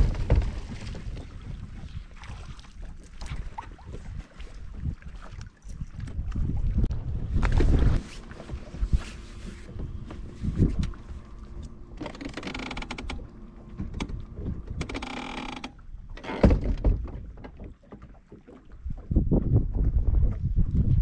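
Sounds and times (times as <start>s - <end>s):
wind buffeting microphone: 0.0s - 11.7s, 18.7s - 21.0s.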